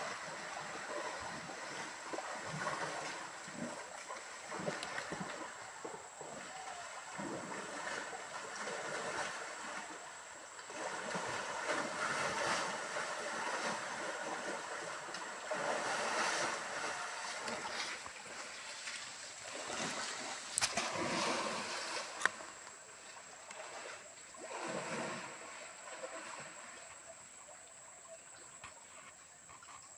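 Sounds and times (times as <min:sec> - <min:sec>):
elephants splashing in water: 0:00.0 - 0:22.6, 0:23.2 - 0:27.1
stream rushing: 0:10.6 - 0:22.7.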